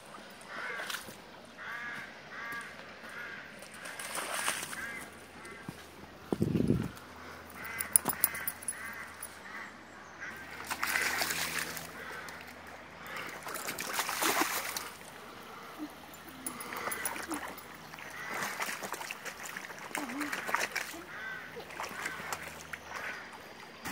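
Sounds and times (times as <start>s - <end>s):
boots squelching through wet mud: 0.6s - 9.0s, 16.6s - 23.2s
birds calling: 4.6s - 13.6s, 14.6s - 23.9s.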